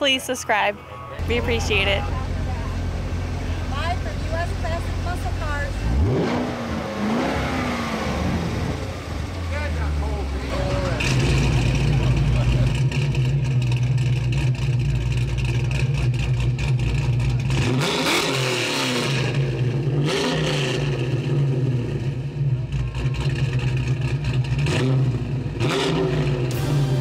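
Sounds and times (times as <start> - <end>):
car engine revving: 1.2 - 27.0.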